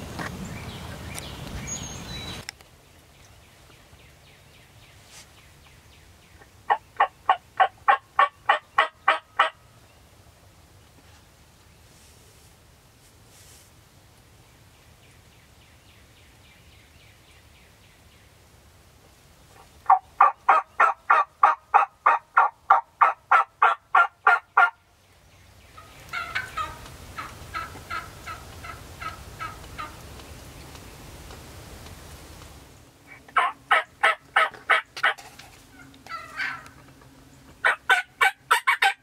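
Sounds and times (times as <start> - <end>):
turkey yelping: 6.7 - 9.6, 19.9 - 24.7, 25.8 - 30.0, 33.1 - 35.2, 35.8 - 36.8, 37.6 - 39.0.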